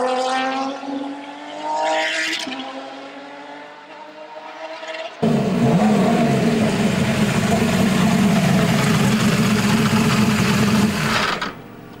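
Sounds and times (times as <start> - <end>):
race car engine idling: 5.2 - 12.0.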